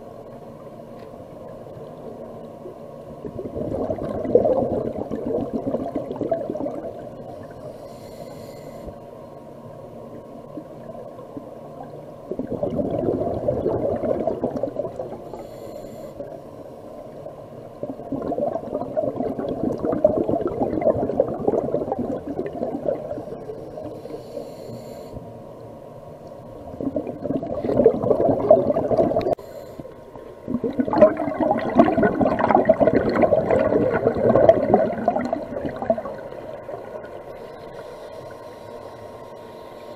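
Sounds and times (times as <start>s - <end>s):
regulator bubbling exhalations: 3.2s - 7.5s, 12.3s - 15.4s, 17.8s - 24.0s, 26.7s - 29.4s, 30.5s - 36.9s.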